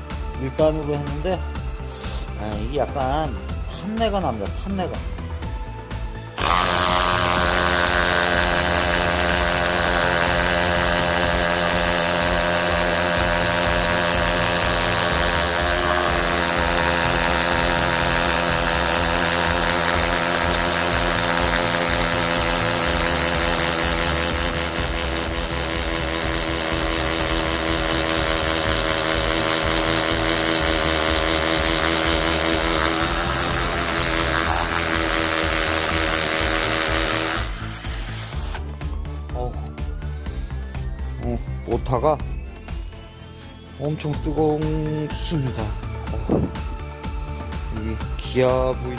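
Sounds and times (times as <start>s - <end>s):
hammer drill boring into concrete: 6.2s - 38.8s.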